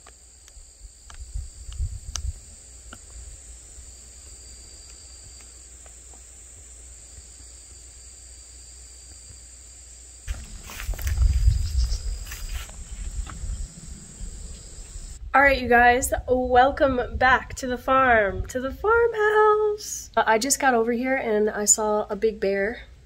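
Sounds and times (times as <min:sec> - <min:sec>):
insects trilling: 0:00.0 - 0:15.2
lower insect trill: 0:00.0 - 0:15.2.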